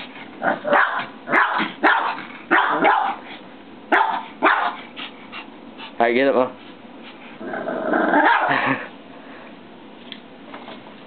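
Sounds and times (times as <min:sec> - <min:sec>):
small dog barking: 0:00.5 - 0:03.2, 0:03.9 - 0:04.8, 0:08.2 - 0:08.6.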